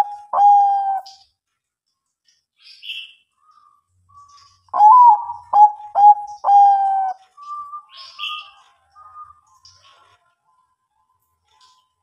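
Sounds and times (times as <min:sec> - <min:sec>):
dove cooing: 0:00.0 - 0:01.2, 0:04.7 - 0:08.6
faint high bird chirps: 0:02.3 - 0:12.0.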